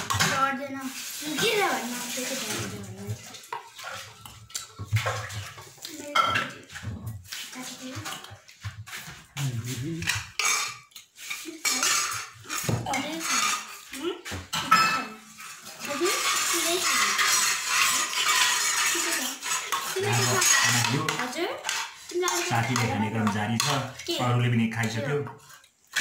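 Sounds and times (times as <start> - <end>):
fork scraping a plate: 6.2 - 14.0, 14.6 - 24.1.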